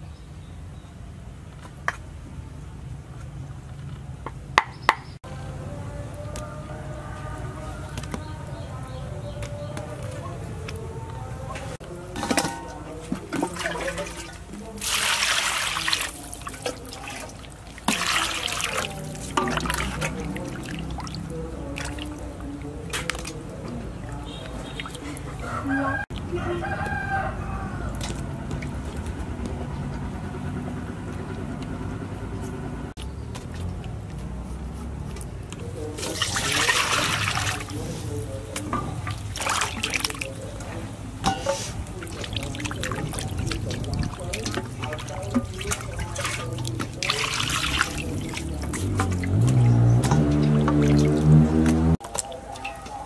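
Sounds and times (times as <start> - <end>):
rushing water: 9.9 - 25.6, 35.8 - 53.0
water splashing in a metal bowl: 11.5 - 25.5, 35.7 - 53.0.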